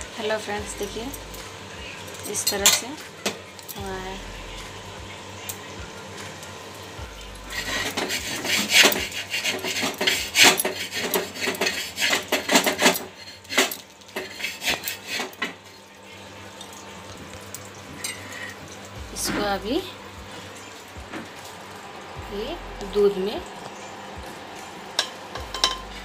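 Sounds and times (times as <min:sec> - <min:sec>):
metal spatula scraping a pan: 0:07.5 - 0:15.6, 0:17.9 - 0:18.6.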